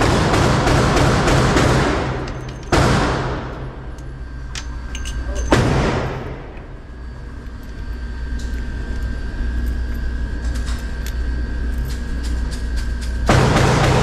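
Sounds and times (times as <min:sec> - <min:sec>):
gunshot echoing indoors: 0:00.0 - 0:03.9, 0:05.4 - 0:06.5, 0:13.3 - 0:14.0
steady low hum: 0:00.0 - 0:14.0.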